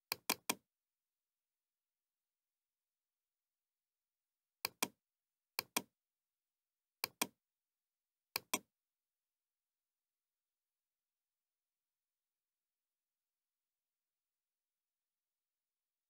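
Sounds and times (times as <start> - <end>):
computer mouse clicks: 0.1 - 0.6, 4.6 - 5.0, 5.6 - 5.9, 7.0 - 7.4, 8.4 - 8.7.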